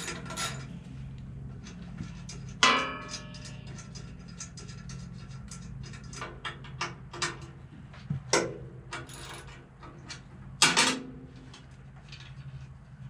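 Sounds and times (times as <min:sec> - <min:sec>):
metal tools clinking: 0:00.0 - 0:00.8, 0:01.5 - 0:06.3, 0:09.0 - 0:09.7
steady low hum: 0:00.0 - 0:09.4.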